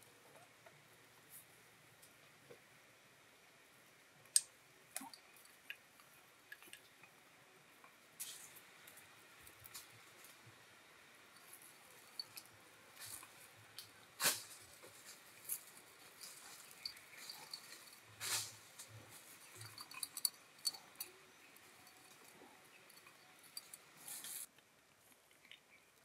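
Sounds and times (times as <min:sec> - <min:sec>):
crackling straw rustles: 0:11.3 - 0:25.8
kitten tapping and rustling: 0:11.4 - 0:24.5.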